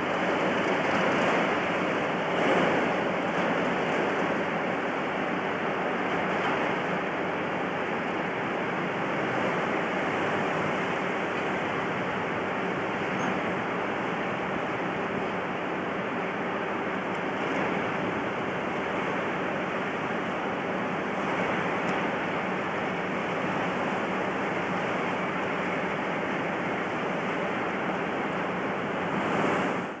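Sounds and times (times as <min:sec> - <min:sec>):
diesel locomotive engine drone: 0:00.0 - 0:30.0.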